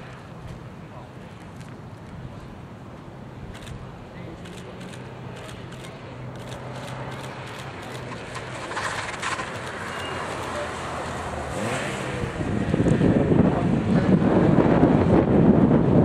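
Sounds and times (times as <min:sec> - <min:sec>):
car engine driving past: 0:06.3 - 0:15.2
wind rumble on microphone: 0:11.2 - 0:16.0.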